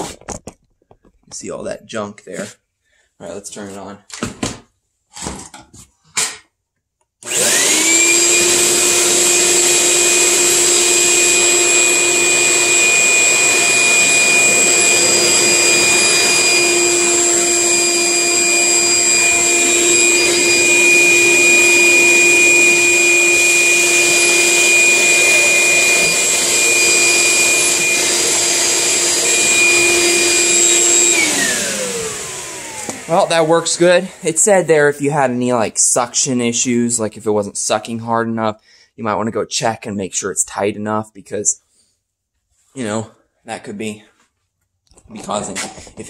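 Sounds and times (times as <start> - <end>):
shop vacuum motor whining: 7.2 - 34.5.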